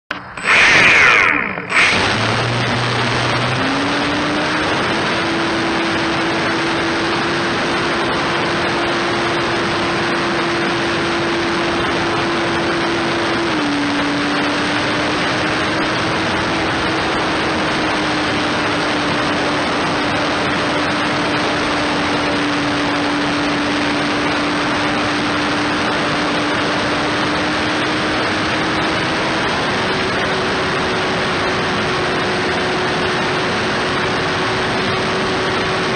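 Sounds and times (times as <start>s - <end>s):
electric motor hum: 0.1s - 7.4s
propeller and air rushing: 0.1s - 35.9s.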